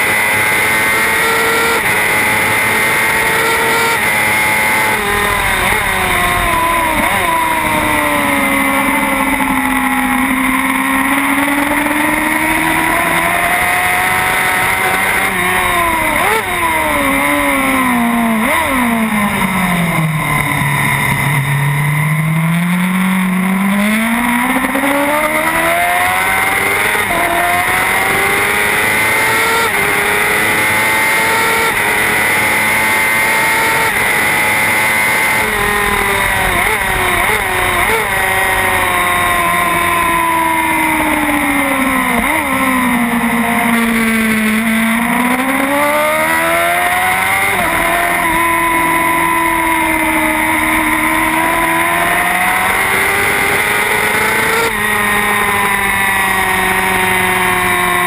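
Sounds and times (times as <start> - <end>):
racing motorcycle engine: 0.0 - 58.0
wind rush: 4.4 - 9.7.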